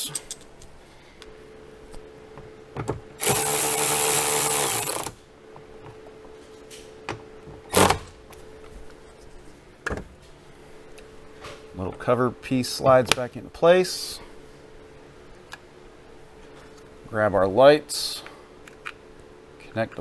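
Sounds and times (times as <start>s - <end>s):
cordless drill running: 3.2s - 5.2s.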